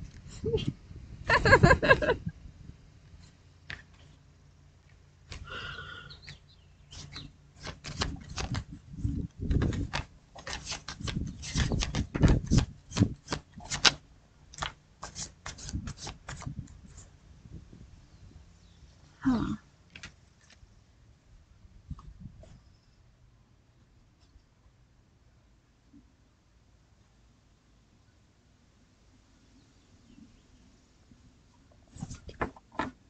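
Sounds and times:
playing cards being shuffled: 7.0s - 14.0s, 14.6s - 16.8s.

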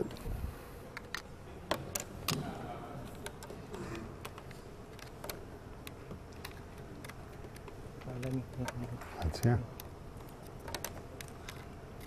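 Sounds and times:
low room hum: 0.0s - 12.0s
laptop handling clicks and knocks: 4.2s - 12.0s.

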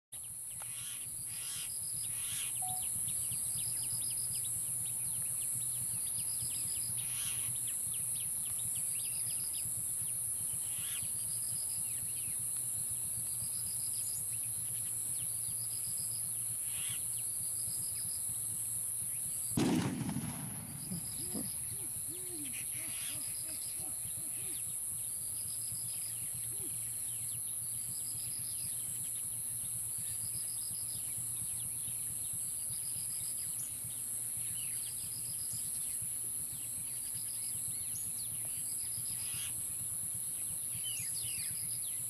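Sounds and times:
high-pitched insect drone: 0.6s - 19.5s, 21.1s - 42.0s
short bird chirps: 2.6s - 2.9s.

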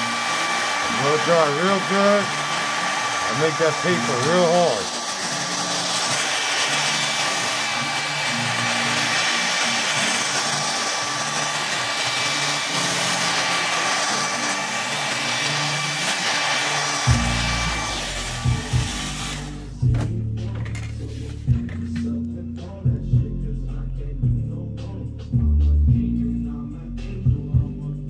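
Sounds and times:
hair dryer blowing: 0.0s - 20.5s
music: 0.0s - 28.0s.

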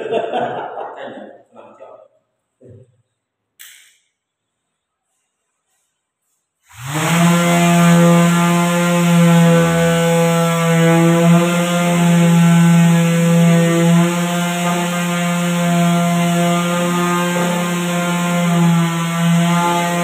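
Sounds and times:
electric sander on wood: 6.6s - 20.0s.

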